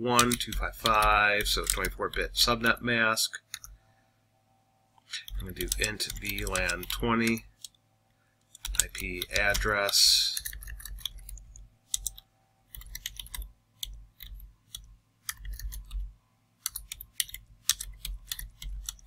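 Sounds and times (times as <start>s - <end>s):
typing on computer keyboard: 0.2s - 2.3s, 5.2s - 7.7s, 8.5s - 19.0s.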